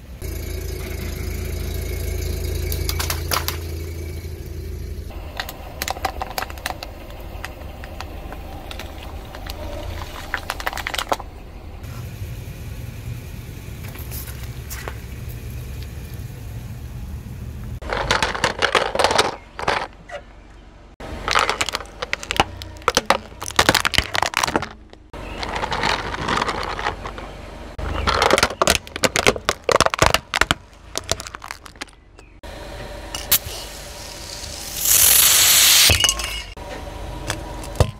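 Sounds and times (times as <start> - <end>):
car engine rumbling: 0.0 - 37.9
objects crunching under car tyre: 0.2 - 11.5, 17.8 - 20.3, 21.0 - 32.4.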